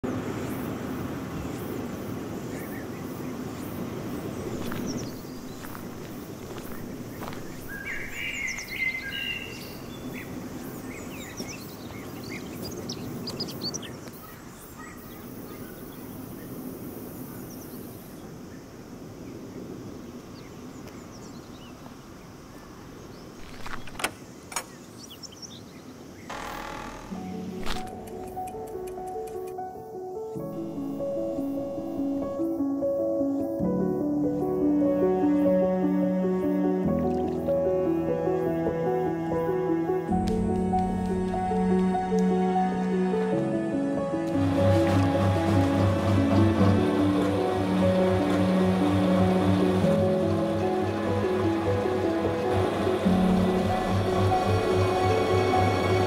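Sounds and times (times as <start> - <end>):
small birds chirping: 1.4 - 29.6
bird chirps: 4.4 - 16.1
faint high ticks: 26.4 - 29.6.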